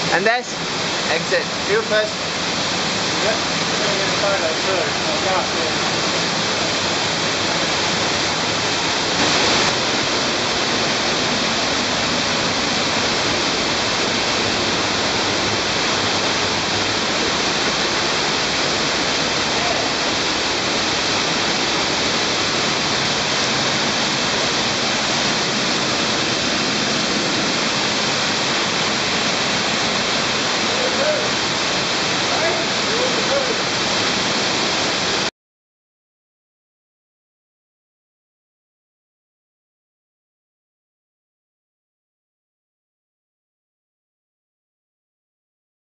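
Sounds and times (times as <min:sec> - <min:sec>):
water rushing down waterfall: 0:00.0 - 0:35.3.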